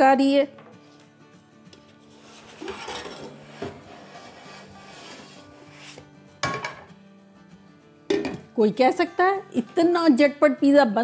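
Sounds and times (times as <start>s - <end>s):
soft background music: 0.0s - 11.0s
pizza scraping out of pan: 2.0s - 6.1s
metal pan clanking on grate: 6.4s - 6.9s.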